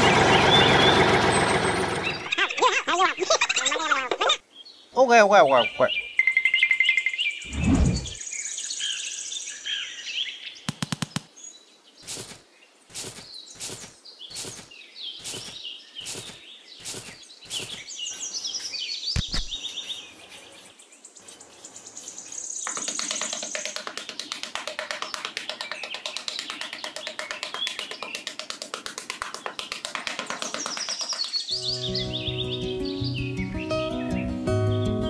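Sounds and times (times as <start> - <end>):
birds chirping: 0.0 - 35.0
trowel scraping sand: 12.0 - 23.3.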